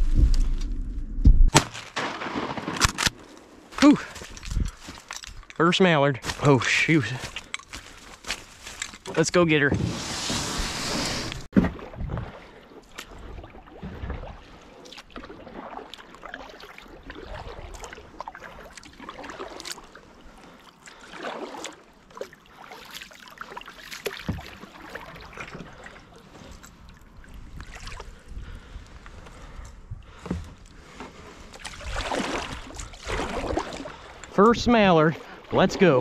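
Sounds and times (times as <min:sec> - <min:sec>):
paddle splashing in water: 0:09.7 - 0:28.7, 0:30.1 - 0:36.0
water trickling off paddle: 0:10.2 - 0:28.7.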